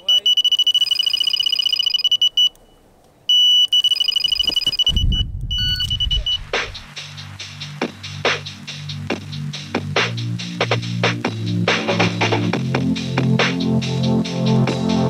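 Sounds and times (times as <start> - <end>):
bite alarm beeping: 0.0 - 6.5
low rumble of handling: 4.5 - 6.9
background music with a beat: 5.8 - 15.0.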